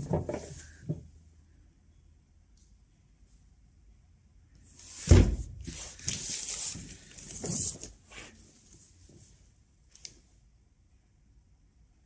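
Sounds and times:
cardboard scraping and rustling: 4.9s - 8.4s
heavy box thump: 5.0s - 5.6s.

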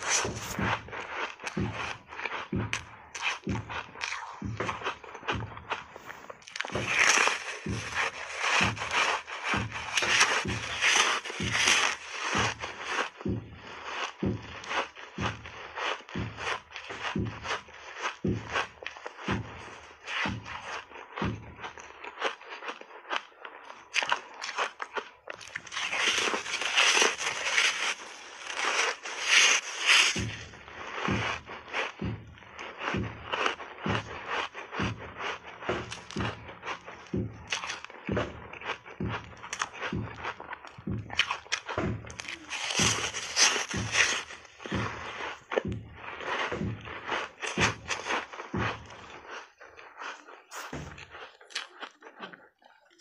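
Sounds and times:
dull thuds: 0.0s - 17.6s, 25.4s - 49.2s
crunching and chewing ice bar: 0.0s - 53.0s.

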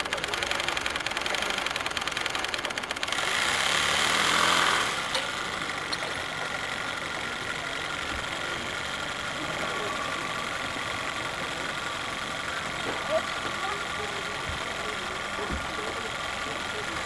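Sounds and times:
steam engine exhaust ticks: 0.0s - 3.4s.

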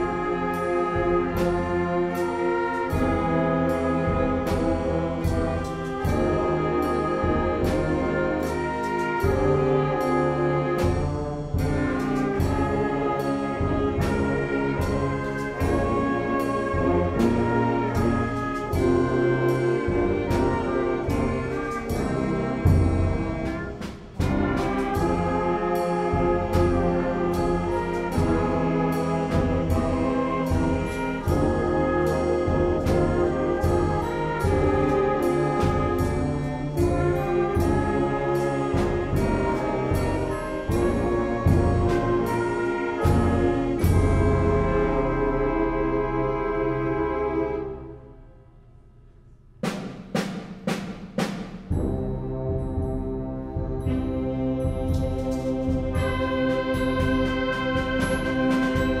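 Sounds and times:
concert band playing: 0.0s - 46.6s, 49.6s - 59.0s
brass chords: 0.0s - 59.0s
percussion strokes: 48.6s - 59.0s.

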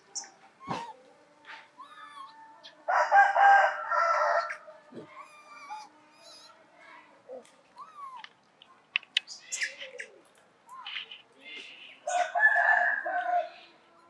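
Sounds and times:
sharp clicks: 8.2s - 9.3s.

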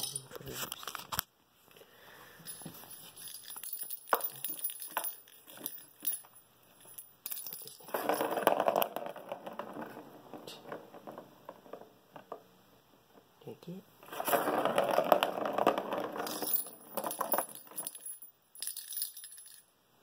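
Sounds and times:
plastic ball rolling in track: 7.8s - 12.4s, 14.0s - 17.8s.

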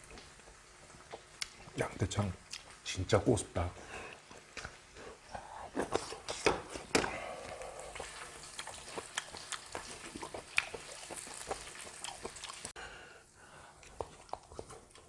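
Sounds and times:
fat crackling and popping: 0.0s - 12.8s
meat sizzling in metal tray: 6.4s - 12.7s.

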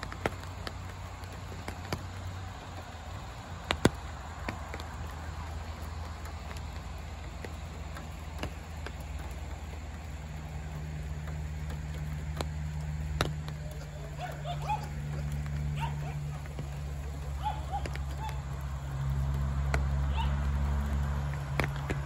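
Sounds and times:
low motor hum: 0.0s - 22.0s
dog yipping and whining: 14.2s - 14.9s, 17.4s - 18.4s.

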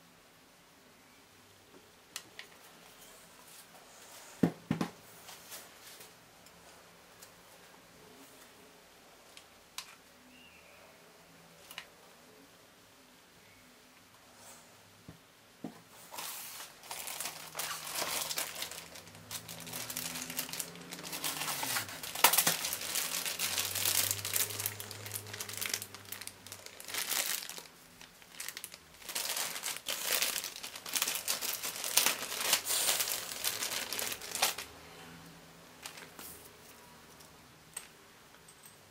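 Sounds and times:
plastic bags crinkling: 16.1s - 34.8s, 35.8s - 36.5s.

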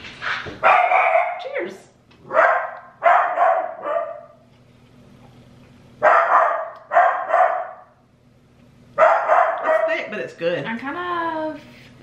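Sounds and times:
dog barking: 0.6s - 1.6s, 2.3s - 4.4s, 6.0s - 8.0s, 9.0s - 10.1s.

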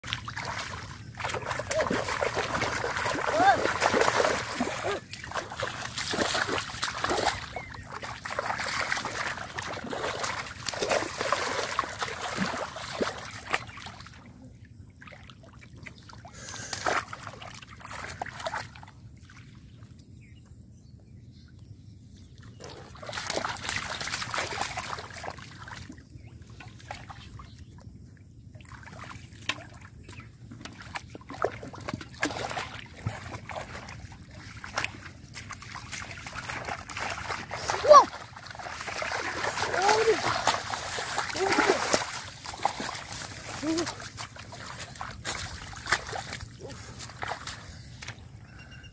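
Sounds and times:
shallow water splashing: 0.0s - 14.4s, 22.5s - 27.6s, 28.6s - 48.2s.

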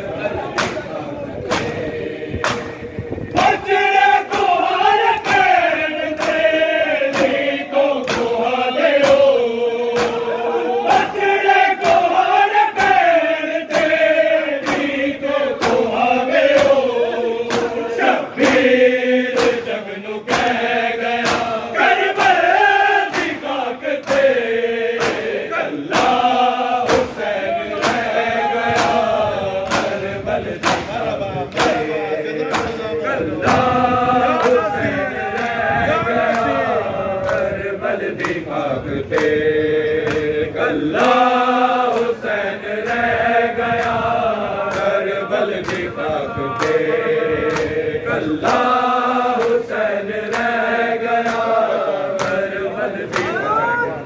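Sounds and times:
men chanting in unison: 0.0s - 54.0s
chest-beating slaps: 0.5s - 3.6s, 6.2s - 11.2s, 14.6s - 15.0s, 15.6s - 22.5s, 23.1s - 33.7s, 34.3s - 35.6s.

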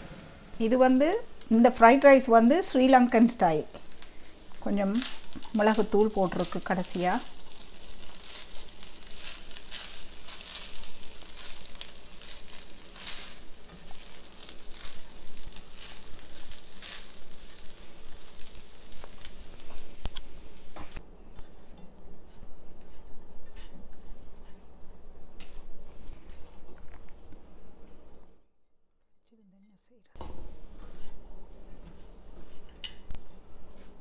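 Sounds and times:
rice sizzling in a pan: 0.0s - 26.1s, 30.2s - 34.0s
spatula scraping a pan: 5.0s - 19.9s.

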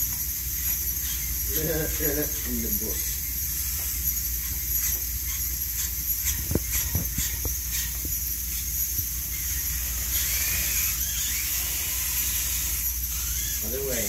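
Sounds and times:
electric motors whirring: 0.0s - 14.0s
steady hiss: 0.0s - 14.0s.

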